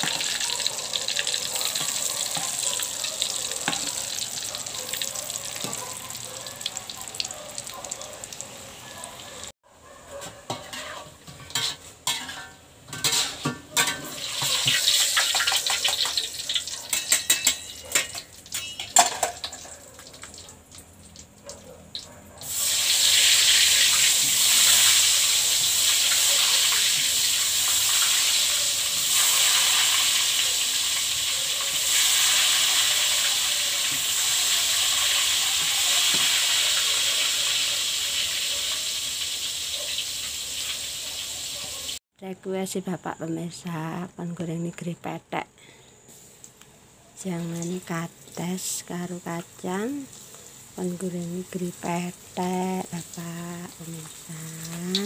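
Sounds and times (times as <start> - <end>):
oil sizzling in a wok: 0.0 - 9.2, 10.5 - 42.0, 46.0 - 55.0
metal spatula scraping: 1.6 - 2.7, 10.1 - 15.5.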